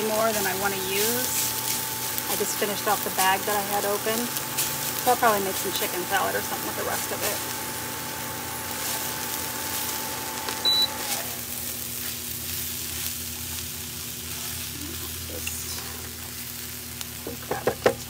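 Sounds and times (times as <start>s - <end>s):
steady whine: 0.0s - 17.2s
food sizzling in a frying pan: 0.0s - 18.0s
cooktop beep: 10.6s - 11.0s.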